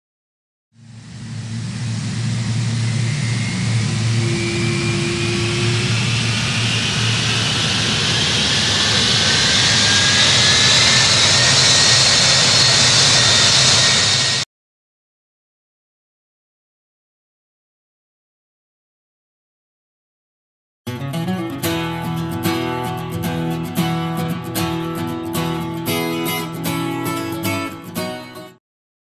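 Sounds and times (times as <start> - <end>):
rising engine whine: 0.8 - 14.4
jet airliner engines at takeoff: 0.8 - 14.5.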